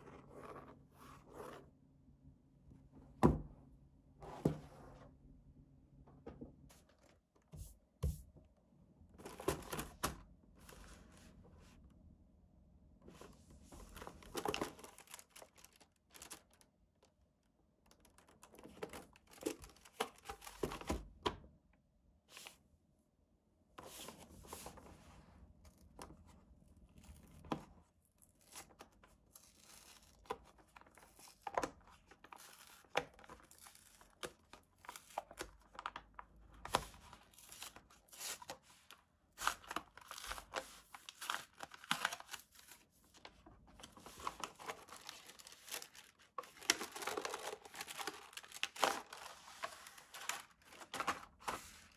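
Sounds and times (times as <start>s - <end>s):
paper crinkling and tearing: 14.0s - 16.6s, 36.7s - 51.9s.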